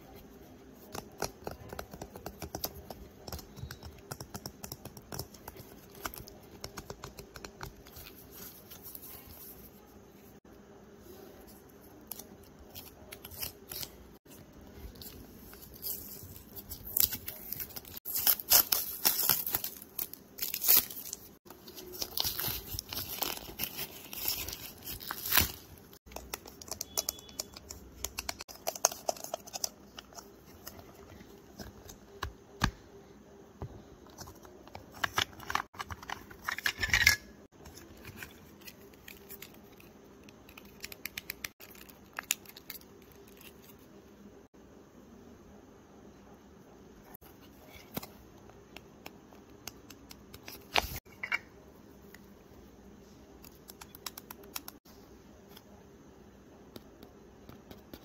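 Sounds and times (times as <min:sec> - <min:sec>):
paper crinkling and tearing: 0:13.0 - 0:26.0.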